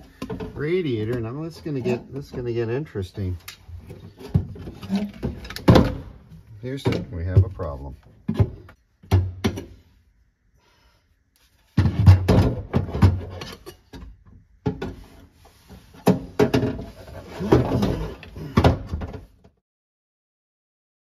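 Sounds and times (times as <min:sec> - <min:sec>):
car parts knocking and rattling: 0:03.5 - 0:09.8, 0:11.7 - 0:15.1, 0:15.8 - 0:19.5.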